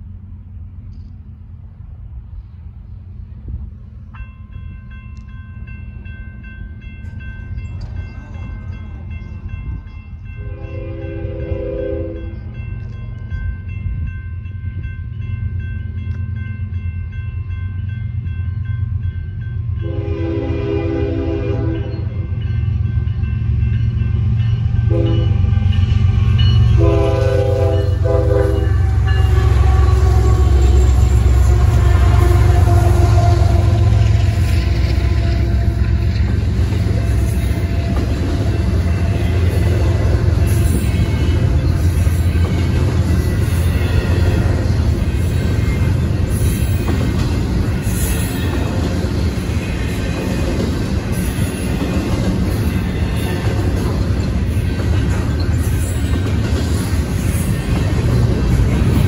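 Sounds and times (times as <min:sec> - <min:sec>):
diesel locomotive rumble: 0:00.0 - 0:59.0
railroad crossing bell dinging: 0:03.8 - 0:59.0
locomotive air horn: 0:10.4 - 0:12.4, 0:19.8 - 0:22.1, 0:24.8 - 0:25.8, 0:26.7 - 0:36.2.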